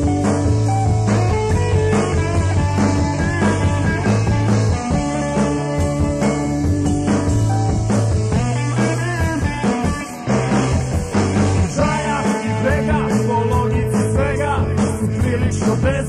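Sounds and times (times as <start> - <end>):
rock music: 0.0 - 16.0
person singing: 11.7 - 16.0.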